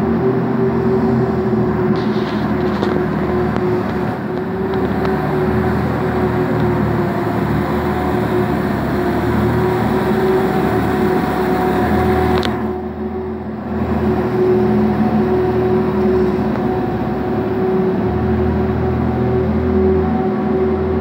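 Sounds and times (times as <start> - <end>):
ice resurfacer engine running: 0.0 - 21.0
steady hum: 0.0 - 21.0.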